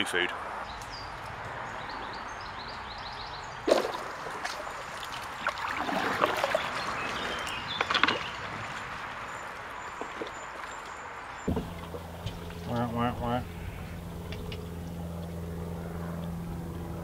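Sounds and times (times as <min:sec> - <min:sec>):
paddle strokes splashing: 0:03.6 - 0:14.9
water sloshing against hull: 0:03.7 - 0:15.5
sharp knock of canoe: 0:11.5 - 0:12.6.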